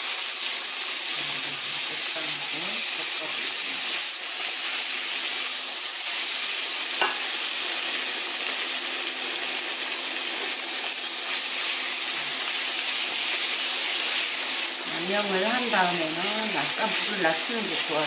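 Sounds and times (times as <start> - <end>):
food sizzling in a frying pan: 0.0 - 18.0.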